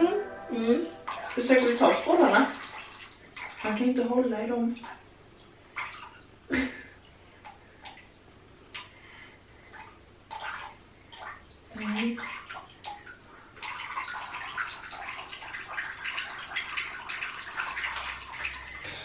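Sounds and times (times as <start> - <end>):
water splashing in baby bath: 1.0 - 6.2, 9.7 - 18.9.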